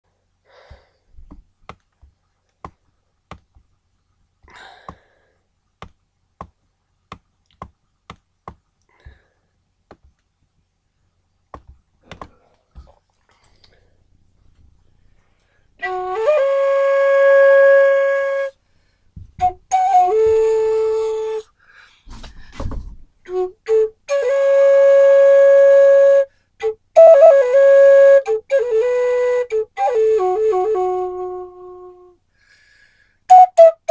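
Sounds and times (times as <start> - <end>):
flute playing long notes: 15.8 - 18.6, 19.4 - 21.5, 23.3 - 32.2, 33.3 - 33.9.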